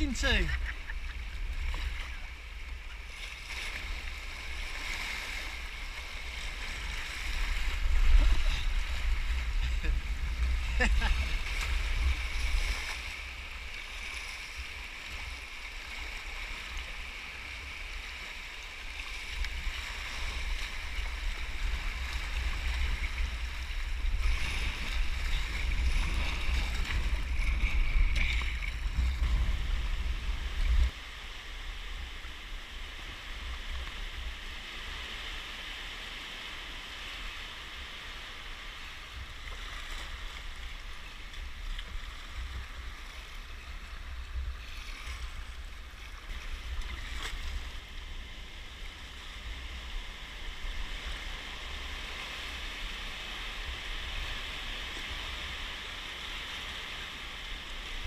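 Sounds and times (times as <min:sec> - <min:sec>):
white water rushing: 0:00.0 - 0:02.4
wind buffeting microphone: 0:19.5 - 0:31.0.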